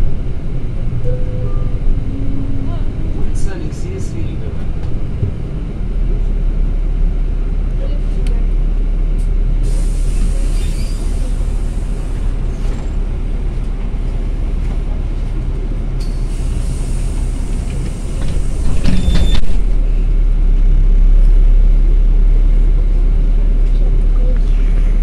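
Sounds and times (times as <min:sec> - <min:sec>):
bus engine and road rumble: 0:00.0 - 0:25.0
brief squeak: 0:10.4 - 0:11.1, 0:18.7 - 0:19.6.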